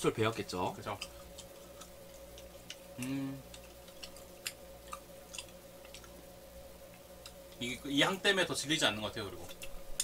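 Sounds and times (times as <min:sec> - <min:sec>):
wet mouth clicks chewing: 0:01.0 - 0:06.2.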